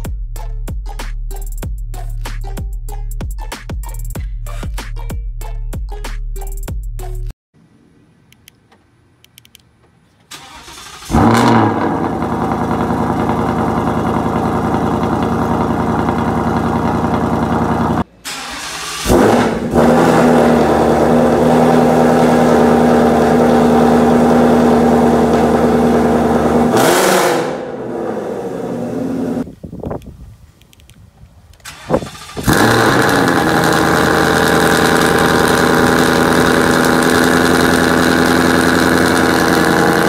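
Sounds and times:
car engine starting and idling: 8.4s - 29.5s, 31.5s - 40.0s.

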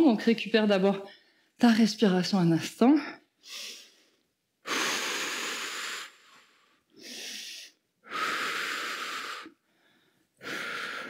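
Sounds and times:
woman breathing hard: 3.2s - 11.0s.

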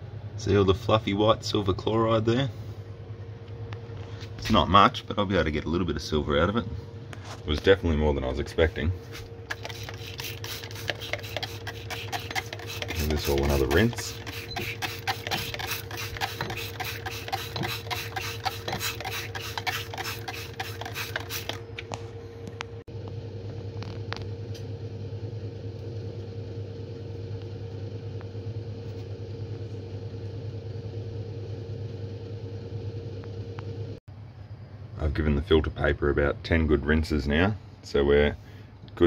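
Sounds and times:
steady low hum: 0.0s - 39.0s
spray bottle squirting water: 9.5s - 21.6s.

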